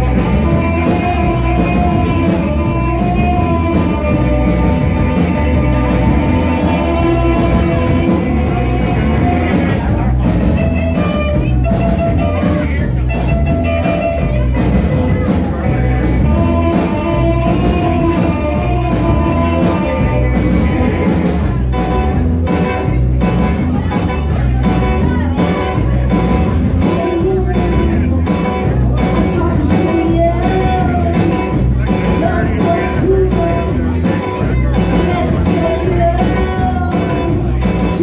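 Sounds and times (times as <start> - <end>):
drums on a steady beat: 0.0 - 38.0
electric guitars: 0.0 - 38.0
woman singing: 29.0 - 33.9, 34.8 - 38.0.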